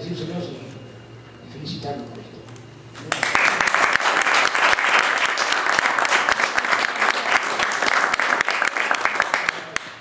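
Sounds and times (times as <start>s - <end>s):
audience applause: 3.1s - 10.0s.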